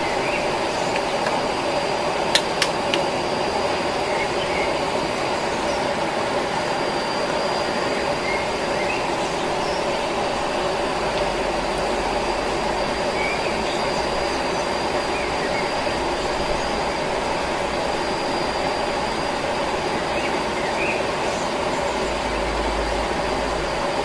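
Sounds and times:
thin high steady tone: 0.0s - 24.0s
sharp clicks: 2.3s - 3.1s.

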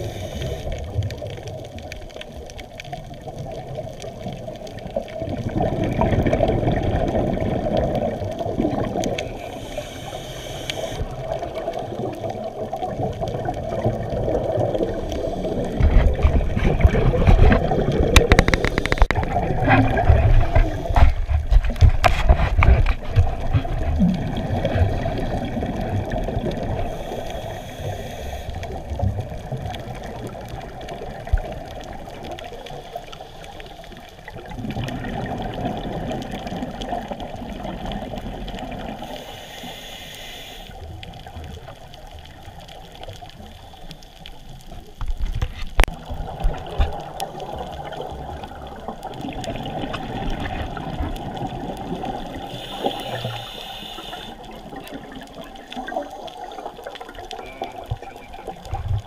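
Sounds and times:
inhalation hiss: 0.0s - 0.8s, 9.4s - 11.2s, 20.4s - 21.3s, 26.7s - 28.7s, 39.0s - 40.8s, 52.4s - 54.5s
regulator bubbles gurgling: 0.0s - 39.8s, 40.7s - 59.0s.

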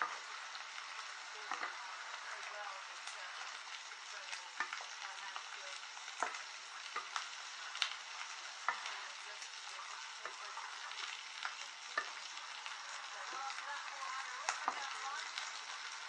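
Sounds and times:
food sizzling in a hot pan: 0.0s - 16.0s
utensil clicking against pan: 1.5s - 1.8s, 4.3s - 9.6s, 10.2s - 13.5s, 14.4s - 15.6s.

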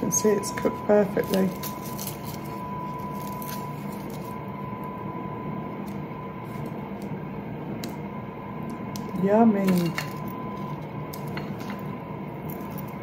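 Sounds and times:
air fryer humming: 0.0s - 13.0s
paper being peeled: 1.2s - 4.3s.

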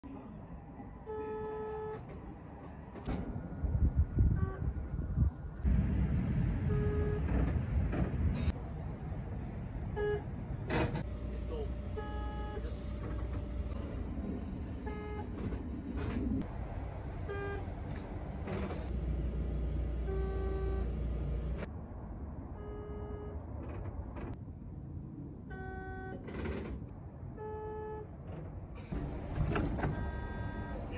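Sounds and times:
hum of stopped trains: 0.0s - 30.9s
train buzzers: 20.0s - 21.0s, 25.5s - 26.2s, 30.0s - 30.8s.

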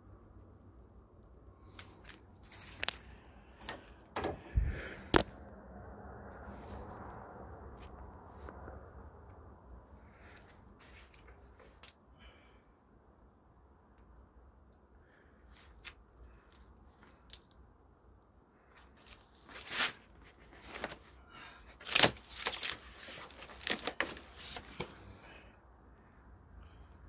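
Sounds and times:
packing material rustling and tearing: 1.6s - 3.8s, 18.8s - 25.1s.

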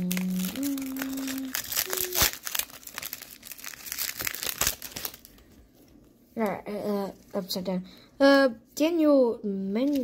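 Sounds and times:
plastic wrapper crinkling and tearing: 0.0s - 5.6s, 9.8s - 10.0s
wrapper rustling: 0.0s - 5.6s, 9.8s - 10.0s.

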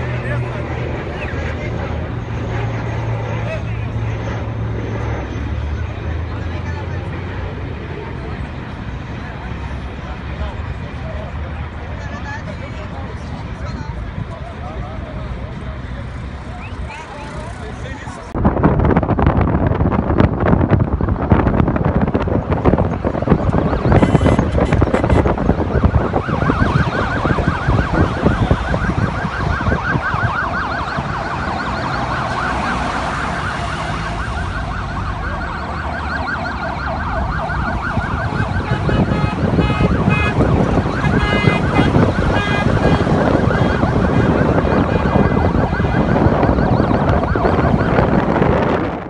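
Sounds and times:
passing road traffic: 0.0s - 49.0s
police sirens warbling: 0.0s - 49.0s
steady siren tones: 0.0s - 49.0s
wind buffeting microphone: 16.8s - 49.0s.

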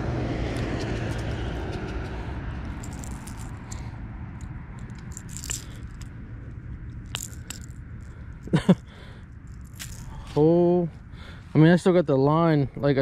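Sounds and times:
low rumble: 0.0s - 11.6s.

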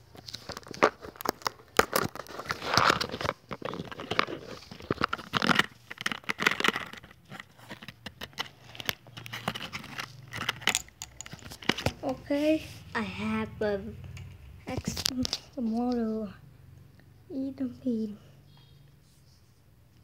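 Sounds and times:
close rustling and crinkling: 0.0s - 12.6s.

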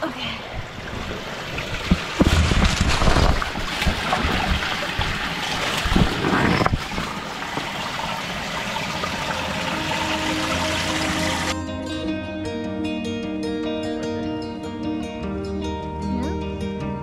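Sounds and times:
stream running over rocks: 0.0s - 11.6s
low bumps: 0.6s - 10.3s
soft background music: 8.9s - 17.0s.

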